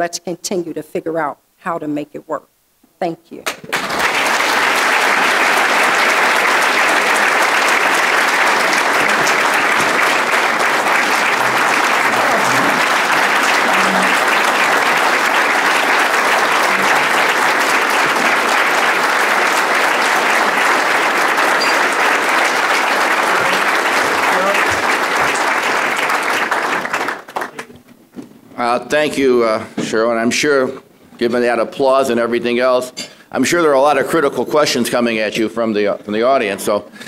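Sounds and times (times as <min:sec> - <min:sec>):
large audience applauding: 0:03.7 - 0:27.7.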